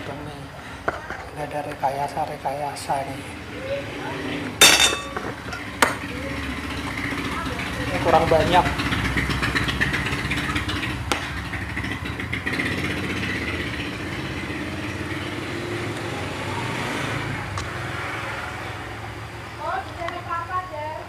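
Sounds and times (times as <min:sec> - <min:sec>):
motor engine running: 0:04.2 - 0:17.8.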